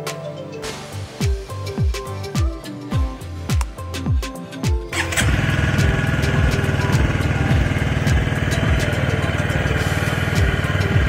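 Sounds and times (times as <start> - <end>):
electric starter cranking: 4.9 - 11.0
motorcycle engine idling: 5.0 - 11.0.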